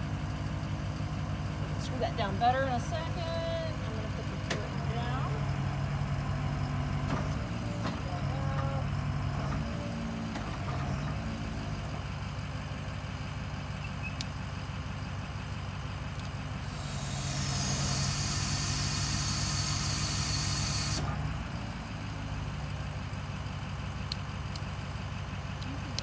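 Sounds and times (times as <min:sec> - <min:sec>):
drill rig engine running: 0:13.6 - 0:21.2
loud hydraulic hiss: 0:16.6 - 0:21.0.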